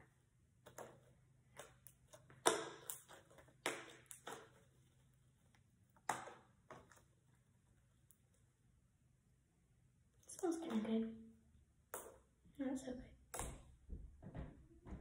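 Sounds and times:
slime squelching and popping: 0.6 - 7.4.

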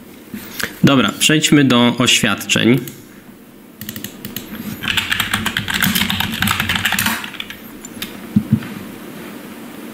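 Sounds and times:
fast typing on keyboard: 3.8 - 8.2
low thumps: 7.6 - 9.1.

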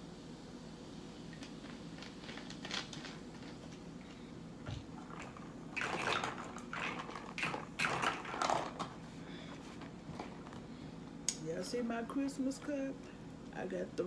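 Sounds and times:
liquid sloshing in plastic cup: 4.7 - 9.0.

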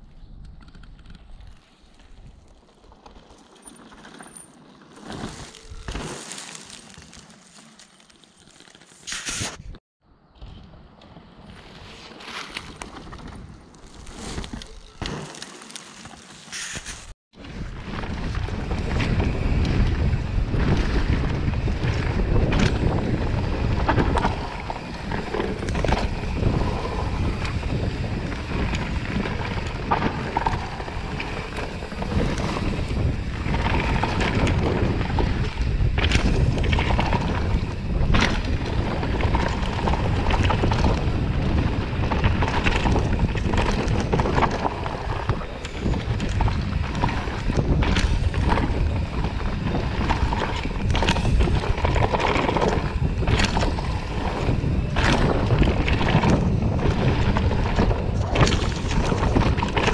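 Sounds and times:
rumble of bike tyres: 0.0 - 59.9
bike knocking and rattling: 0.4 - 9.4, 10.3 - 59.9
wind buffeting microphone: 17.3 - 59.9.

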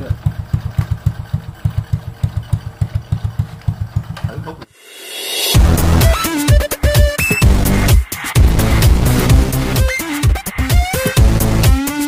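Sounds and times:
motorcycle engine idling: 0.0 - 4.6
rising whoosh: 4.7 - 6.1.

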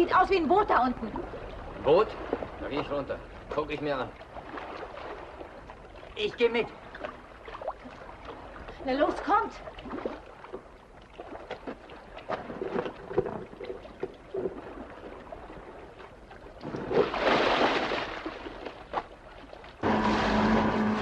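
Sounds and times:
diver splashing into water: 16.6 - 19.0
boat engine humming: 19.8 - 21.0.

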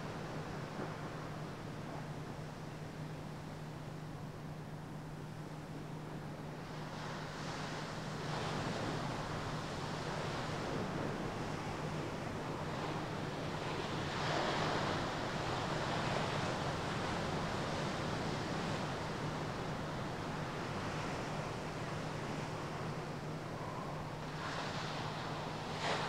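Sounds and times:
steady low hum: 0.0 - 26.0
wind: 0.0 - 26.0
sea surf washing in: 6.6 - 26.0.

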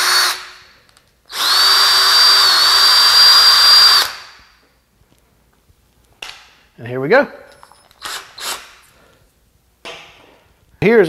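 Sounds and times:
drill motor whine: 1.3 - 4.2.

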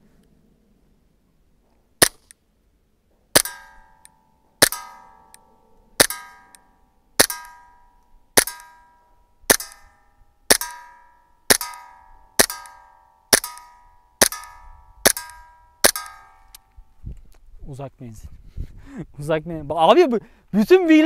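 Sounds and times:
airsoft pistol shots: 2.0 - 2.3, 3.4 - 3.9, 4.6 - 5.2, 6.0 - 6.5, 7.2 - 7.7, 8.4 - 8.8, 9.5 - 9.9, 10.5 - 16.4
metal target plate ringing: 3.4 - 16.6.

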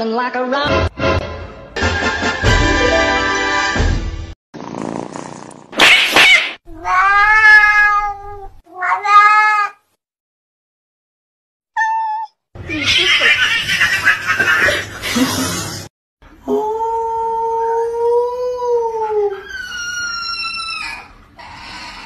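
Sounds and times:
cats yowling: 6.2 - 9.8, 17.4 - 22.0
cat meowing: 6.7 - 9.8, 11.8 - 12.4.

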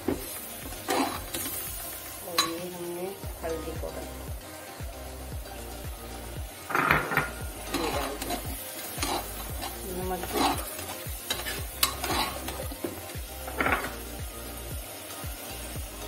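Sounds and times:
meat sizzling in oil: 0.0 - 16.0
spoon scraping a pan: 0.6 - 1.7, 6.7 - 14.0.

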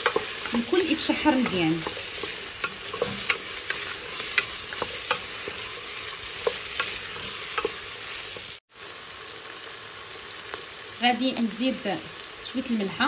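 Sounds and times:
wooden spoon tapping pot: 0.0 - 7.8
vegetables sizzling in butter: 0.0 - 13.0.

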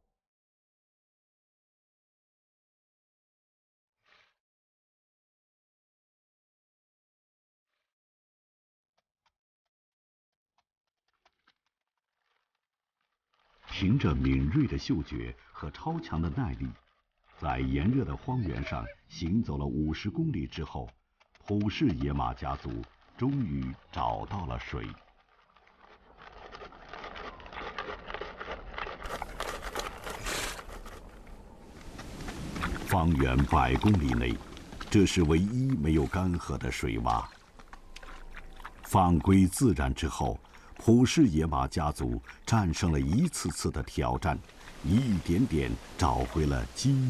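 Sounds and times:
hoofsteps on stony ground: 13.4 - 46.9
horses splashing in mud and water: 13.6 - 20.2, 21.3 - 47.0.

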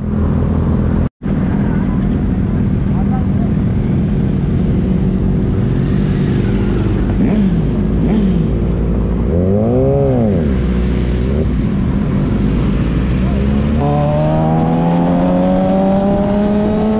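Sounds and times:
motorcycle engines running: 0.0 - 16.9
motorcycle engine revving: 4.2 - 16.9.

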